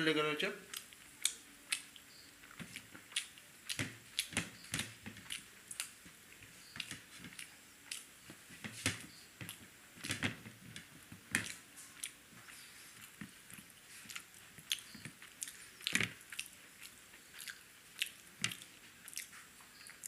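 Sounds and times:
chewing mouth clicks: 0.7s - 4.3s, 6.8s - 8.1s, 11.4s - 20.0s.

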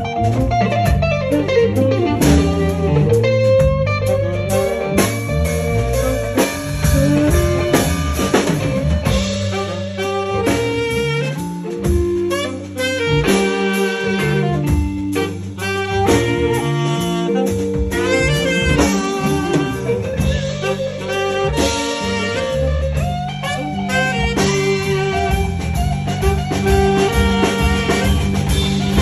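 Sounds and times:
drum kit: 0.0s - 29.0s
electric bass: 0.0s - 29.0s
electric guitar: 0.0s - 29.0s
saxophone lead: 0.0s - 29.0s.

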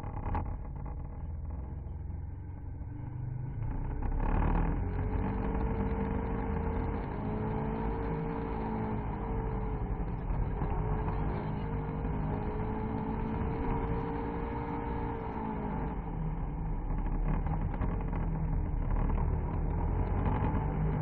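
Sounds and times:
low rumble: 0.0s - 7.3s
rally car engine revving: 0.0s - 21.0s.

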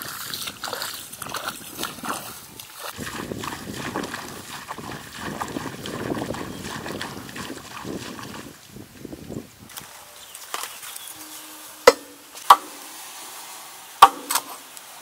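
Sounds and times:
footsteps sloshing through water: 0.0s - 11.2s.

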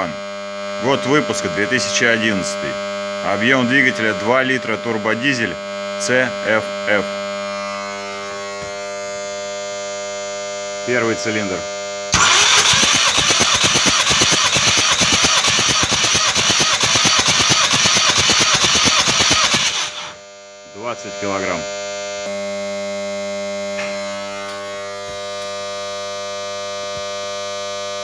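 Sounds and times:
starter motor cranking engine: 12.2s - 20.2s.

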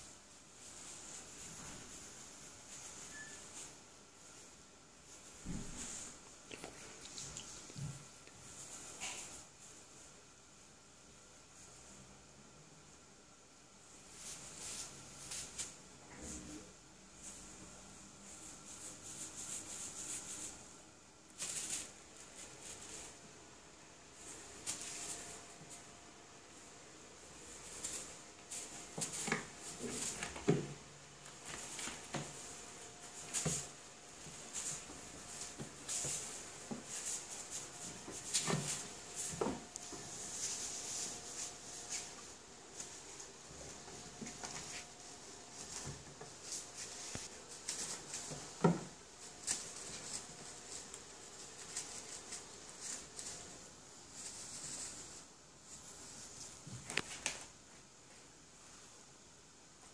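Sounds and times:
tinsel toy rustling: 0.0s - 6.3s, 13.8s - 15.8s, 17.2s - 23.2s, 24.1s - 56.9s.

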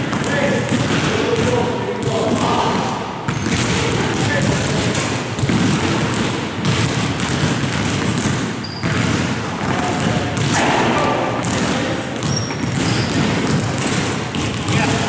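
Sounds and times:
basketballs bouncing on wooden floor: 0.0s - 15.0s.

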